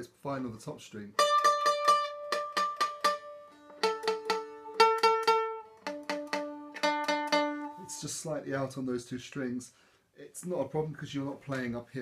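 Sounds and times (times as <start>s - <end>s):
stick dulcimer strummed: 1.2s - 8.2s.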